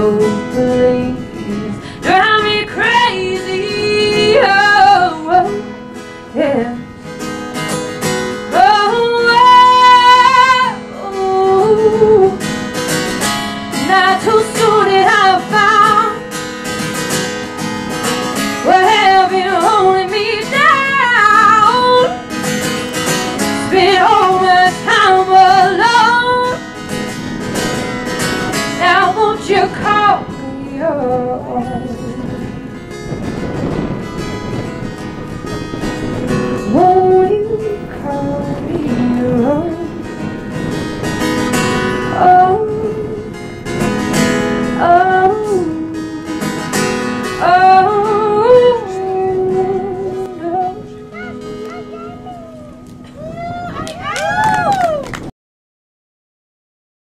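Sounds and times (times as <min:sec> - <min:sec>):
woman singing folk song: 0:00.0 - 0:07.2, 0:08.0 - 0:17.4, 0:18.3 - 0:27.0, 0:28.4 - 0:32.8, 0:36.5 - 0:40.4, 0:41.5 - 0:52.3
acoustic guitar: 0:00.0 - 0:55.3.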